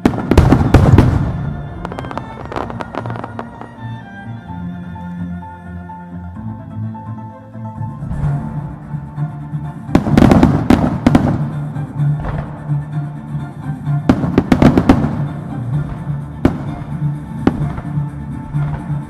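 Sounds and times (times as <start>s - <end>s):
fireworks bangs: 0.0s - 4.0s, 10.0s - 12.9s, 14.1s - 19.0s
music: 0.0s - 19.0s.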